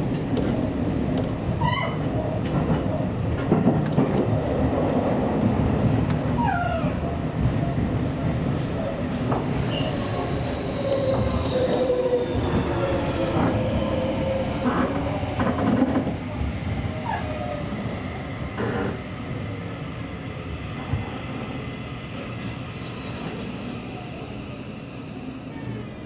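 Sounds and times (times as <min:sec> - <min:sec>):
rail clicks: 0:00.0 - 0:06.3, 0:08.4 - 0:16.2, 0:20.8 - 0:24.0
electric train rumbling on rails: 0:00.0 - 0:26.0
thin train whine: 0:05.0 - 0:26.0.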